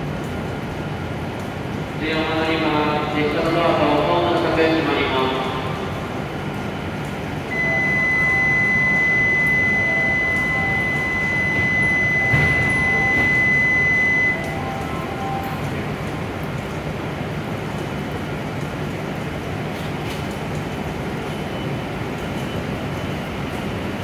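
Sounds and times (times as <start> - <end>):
low steady hum: 0.0 - 21.8
high electronic departure tone: 7.5 - 15.8.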